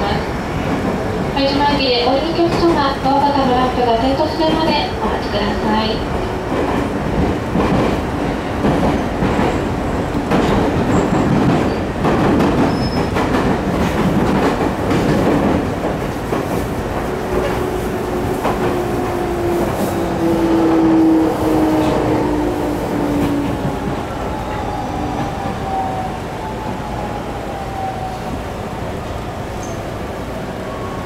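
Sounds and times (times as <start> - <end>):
train wheels rumbling over rails: 0.0 - 31.0.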